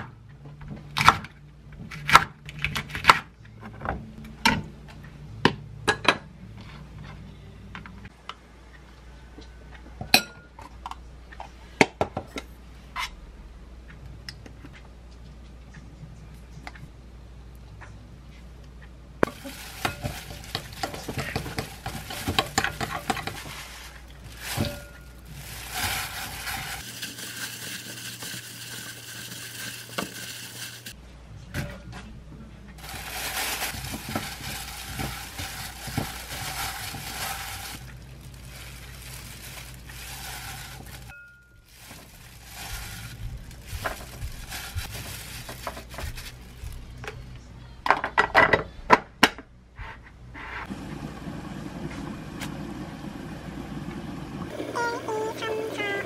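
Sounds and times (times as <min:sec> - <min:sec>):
wet handling noises: 0:19.2 - 0:31.0, 0:32.8 - 0:47.0.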